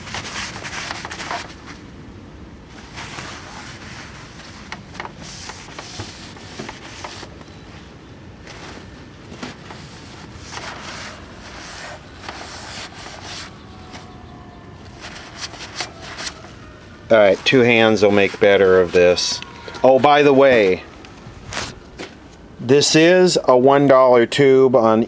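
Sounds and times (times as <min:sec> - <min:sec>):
scrubbing by hand: 0:03.0 - 0:07.4.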